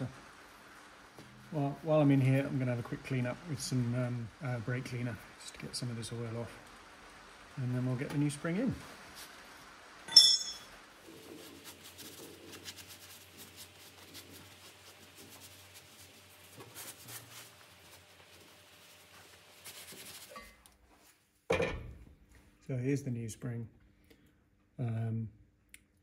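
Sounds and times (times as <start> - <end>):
gloved hand rubbing metal: 11.1 - 20.4.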